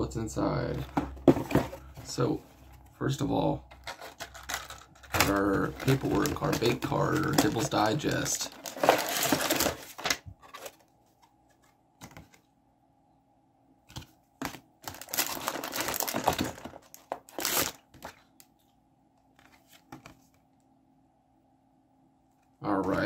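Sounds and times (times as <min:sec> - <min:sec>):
paper and packaging rustling: 0:00.8 - 0:02.9, 0:03.7 - 0:12.4, 0:14.0 - 0:18.7.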